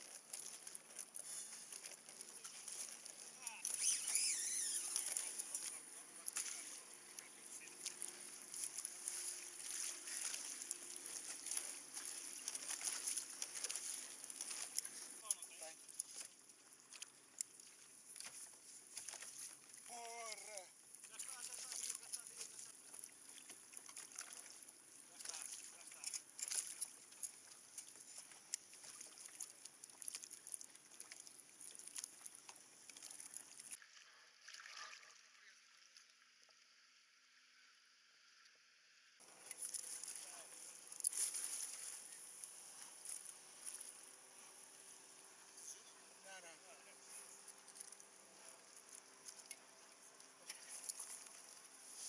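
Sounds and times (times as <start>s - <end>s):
water lapping against kayak hull: 0.0s - 36.6s, 39.2s - 52.0s
small sharp ticks and drips: 0.0s - 38.6s, 39.2s - 52.0s.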